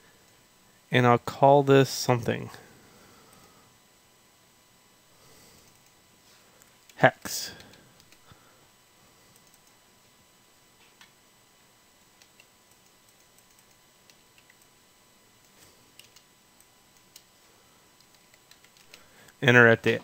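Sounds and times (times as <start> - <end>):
keyboard and mouse clicks: 9.3 - 9.8, 12.2 - 14.7, 15.4 - 17.3, 18.0 - 19.0.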